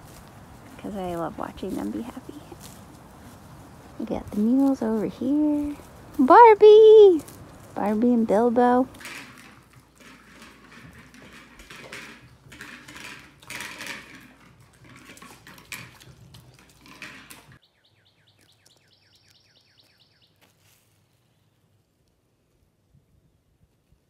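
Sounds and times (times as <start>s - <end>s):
bowls clinking and scraping: 8.9s - 17.6s
dogs chewing and lapping: 9.0s - 17.6s.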